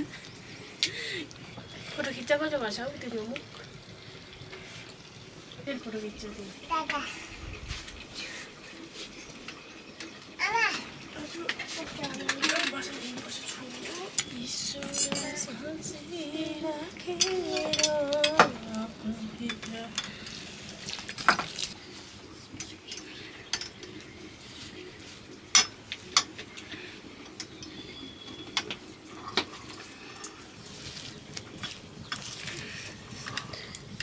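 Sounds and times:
utensils clinking on metal: 0:11.4 - 0:16.0, 0:16.9 - 0:18.8, 0:19.4 - 0:21.8.

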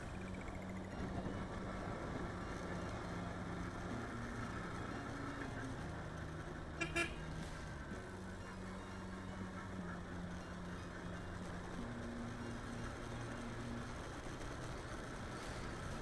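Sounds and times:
motorcycle engine running: 0:00.0 - 0:16.0
wind and road noise: 0:00.0 - 0:16.0
vehicle horn beeps: 0:06.8 - 0:07.3.

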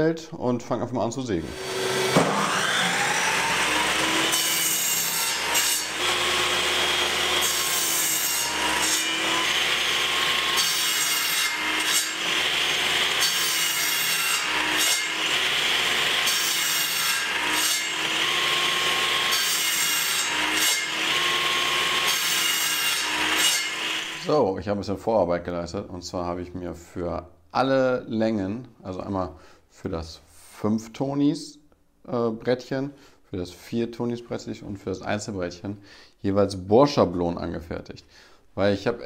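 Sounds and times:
table saw cutting plywood: 0:01.4 - 0:24.3.

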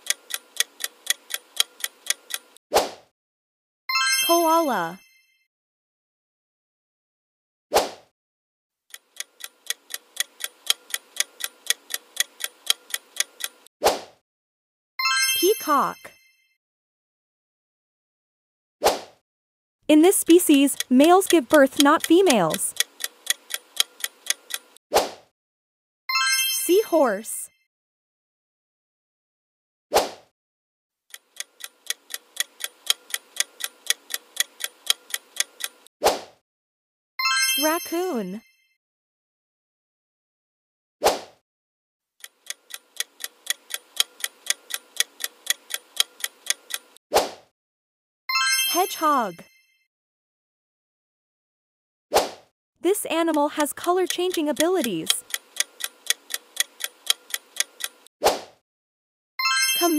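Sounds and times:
clock-like timer ticks: 0:00.0 - 0:02.6, 0:08.9 - 0:13.7, 0:19.9 - 0:24.8, 0:31.1 - 0:35.9, 0:42.2 - 0:47.0, 0:53.0 - 0:58.1.

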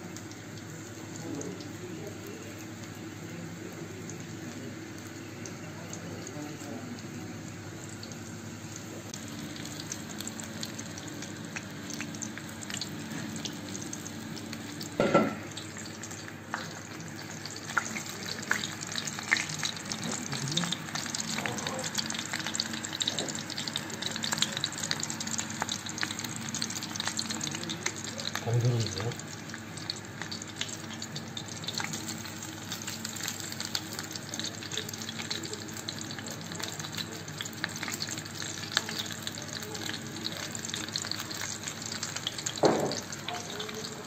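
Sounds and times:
hot oil sizzling: 0:00.0 - 0:44.0.

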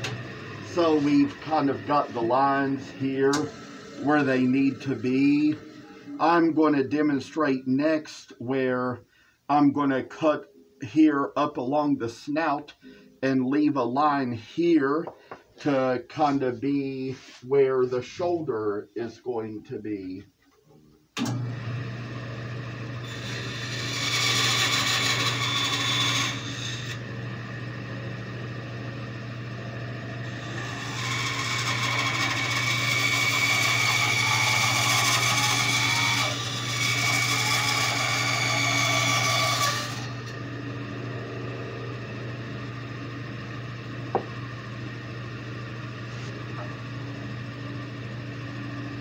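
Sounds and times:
bandsaw running: 0:00.0 - 0:06.2, 0:22.8 - 0:42.9
bandsaw blade cutting wood: 0:00.0 - 0:06.3, 0:23.0 - 0:27.1, 0:30.2 - 0:40.4.

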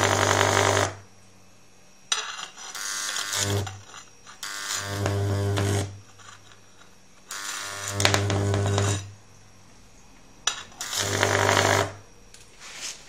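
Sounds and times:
electric arc buzzing and crackling: 0:00.0 - 0:01.1, 0:02.1 - 0:09.2, 0:10.4 - 0:12.5
loud transformer hum: 0:00.0 - 0:12.5
sharp electric snap: 0:02.1 - 0:03.8.

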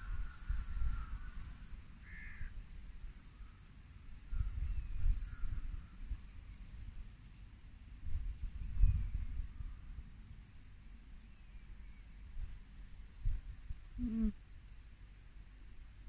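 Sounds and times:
wind buffeting microphone: 0:00.0 - 0:01.5, 0:04.3 - 0:06.2, 0:08.1 - 0:09.8
meadow insects chirring: 0:00.0 - 0:16.0.

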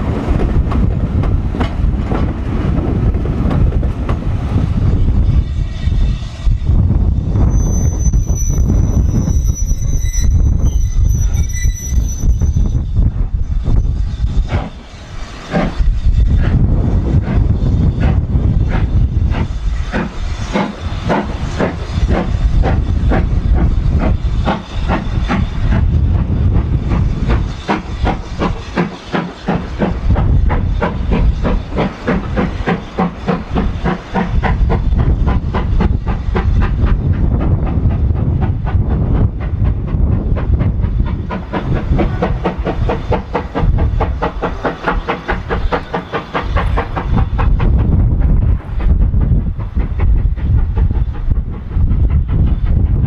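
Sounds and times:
steam hissing: 0:00.0 - 0:53.0
steam locomotive exhaust beats: 0:00.0 - 0:53.0.

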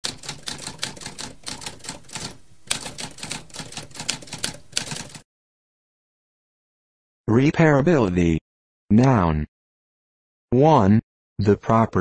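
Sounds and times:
typewriter keys clacking: 0:00.0 - 0:05.2.

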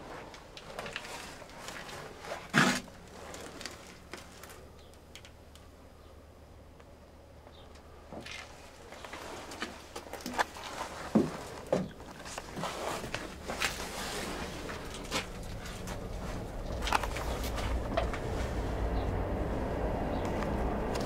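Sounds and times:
low rumble: 0:14.3 - 0:21.0.

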